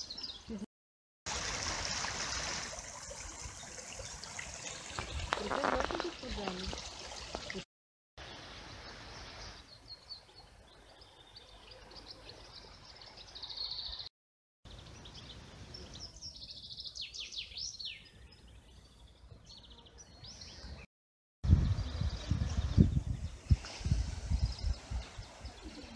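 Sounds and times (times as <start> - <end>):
songbirds chirping and singing: 8.3 - 14.1, 14.7 - 20.9.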